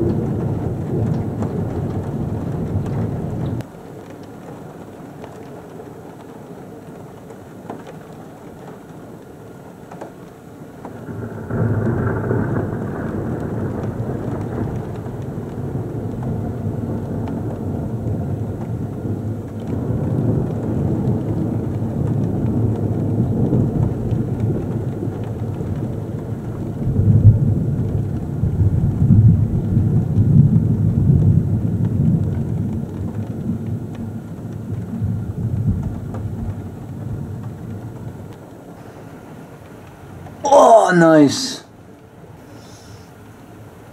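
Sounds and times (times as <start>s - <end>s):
rolling thunder rumble: 0.0s - 3.7s, 10.9s - 38.4s
rain falling: 0.0s - 43.9s.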